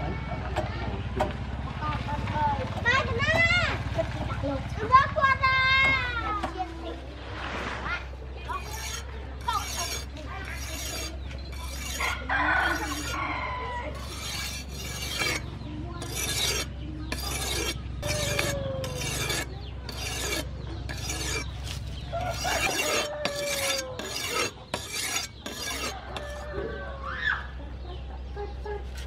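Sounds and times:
knife scraping on sharpening stone: 0:08.5 - 0:13.3, 0:13.9 - 0:26.5.

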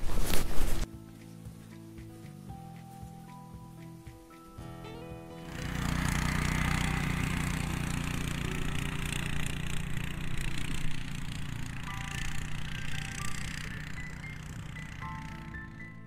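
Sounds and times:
small engine running: 0:04.9 - 0:16.0.

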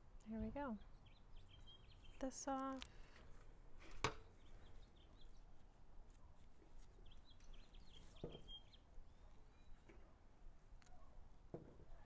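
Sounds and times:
faint bird chirps: 0:00.8 - 0:02.6, 0:06.8 - 0:10.2.

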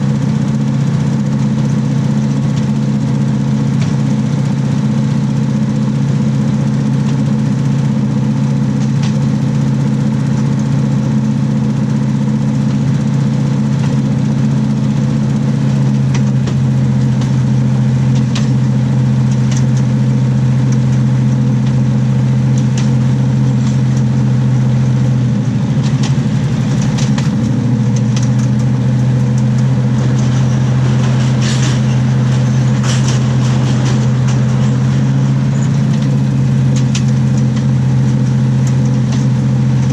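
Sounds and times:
diesel engine drone: 0:00.0 - 0:39.9
wheels rumbling on rails: 0:00.0 - 0:39.9
sharp clicks from wheels: 0:08.7 - 0:09.3, 0:15.7 - 0:39.9.

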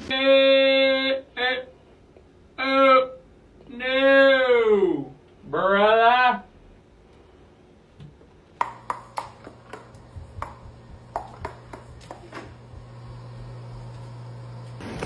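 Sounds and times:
steady low hum: 0:06.5 - 0:15.0.

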